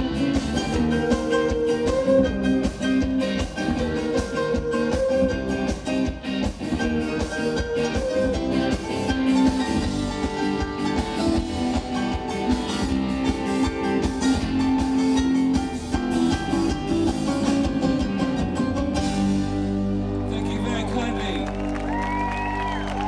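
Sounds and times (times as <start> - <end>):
drum kit beat: 0.0 - 19.7
bass guitar: 0.0 - 23.0
electric guitars: 0.0 - 23.0
keyboards: 0.0 - 23.0.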